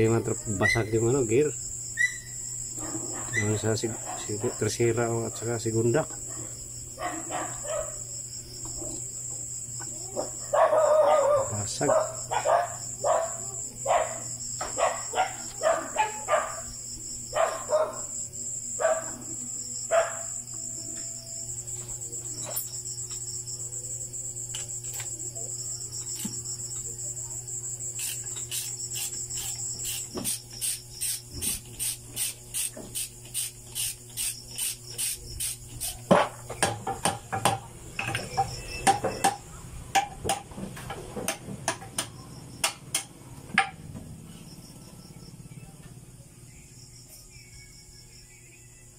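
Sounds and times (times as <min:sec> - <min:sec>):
crickets trilling: 0:00.0 - 0:48.9
knocks and clinks of tools: 0:36.1 - 0:39.4.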